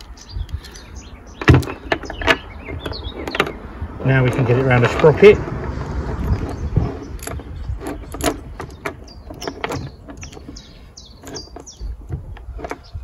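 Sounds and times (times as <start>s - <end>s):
saw chain clicking and rattling: 6.1s - 13.0s.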